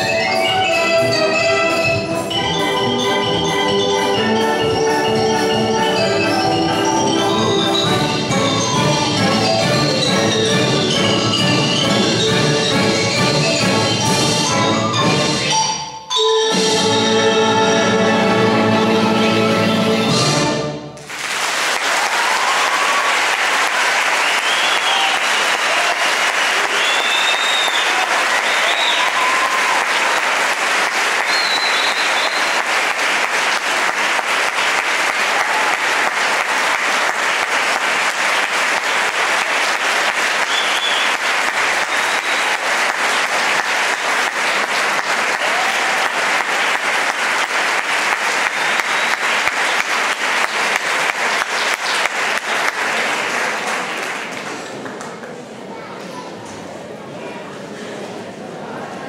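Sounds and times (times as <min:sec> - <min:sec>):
audience clapping: 0:21.0 - 0:55.6
audience cheering: 0:21.1 - 0:54.1.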